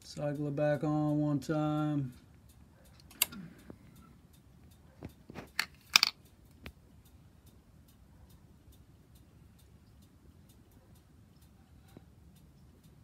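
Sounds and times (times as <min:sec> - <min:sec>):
faint even ticking: 0:00.0 - 0:05.6, 0:06.2 - 0:13.0.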